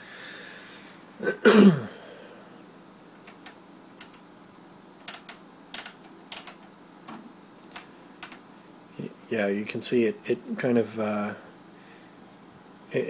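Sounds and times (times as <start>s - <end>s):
rotary switch knobs clicking: 3.2s - 4.2s, 5.0s - 8.4s.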